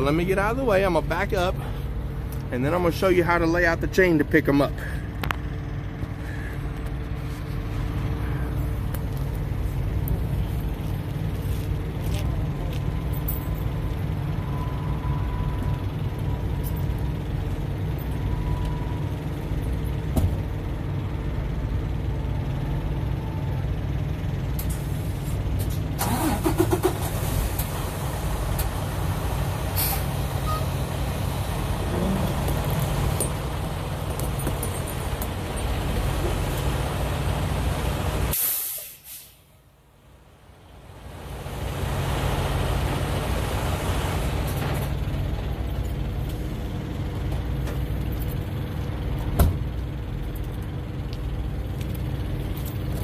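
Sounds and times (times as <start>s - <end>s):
diesel truck engine idling: 0.0s - 53.0s
air brake hisses: 29.7s - 30.6s, 38.3s - 39.5s.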